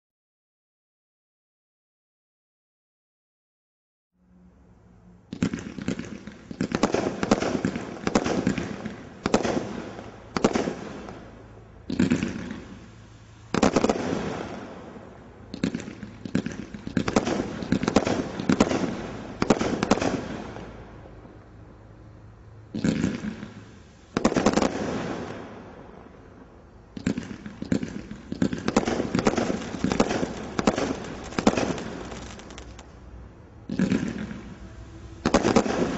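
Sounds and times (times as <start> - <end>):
roman candle firing crackling: 28.6 - 32.9.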